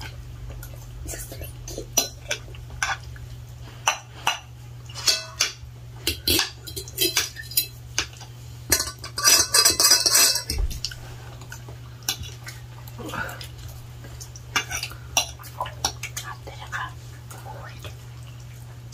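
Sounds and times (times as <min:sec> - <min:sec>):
cutlery clinking on plates: 0:03.8 - 0:11.0.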